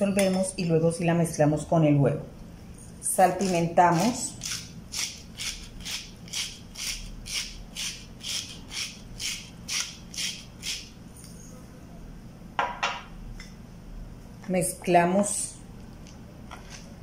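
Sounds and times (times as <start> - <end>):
pepper mill grinding: 3.1 - 10.9.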